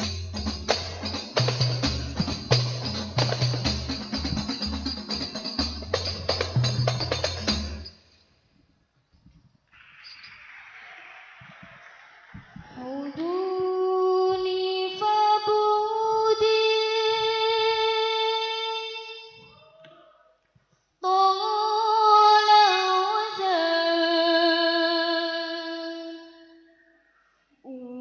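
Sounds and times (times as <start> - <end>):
young voices singing: 12.5 - 17.8.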